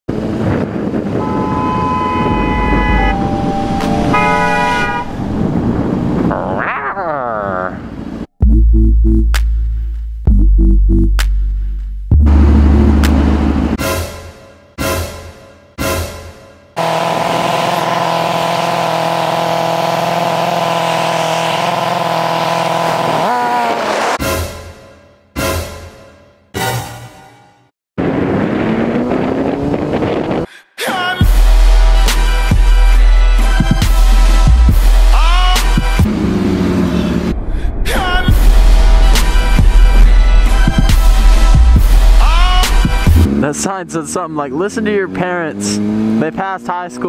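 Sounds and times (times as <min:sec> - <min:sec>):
wind rumble: 0:00.1 - 0:08.3, 0:28.0 - 0:30.5, 0:36.1 - 0:43.2
vehicle horns honking: 0:01.0 - 0:05.7
motorcycle engine idling and revving: 0:16.7 - 0:24.2, 0:28.5 - 0:30.5, 0:33.4 - 0:37.4, 0:38.3 - 0:47.0
motorcycle engine: 0:16.8 - 0:24.2, 0:36.0 - 0:37.4.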